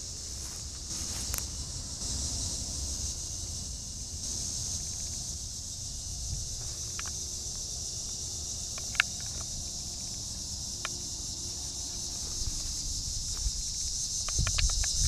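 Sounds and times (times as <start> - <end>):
wind rumble on microphone: 0.0 - 8.2, 12.0 - 15.0
insects chorus: 0.0 - 15.0.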